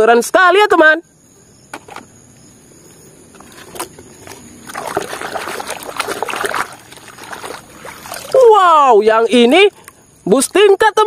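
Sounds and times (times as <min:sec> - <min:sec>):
water sloshing in plastic basin: 0:03.3 - 0:10.7.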